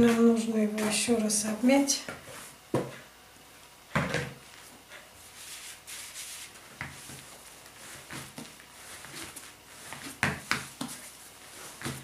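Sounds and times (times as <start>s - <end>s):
rustling of hands handling dough: 4.3s - 12.0s.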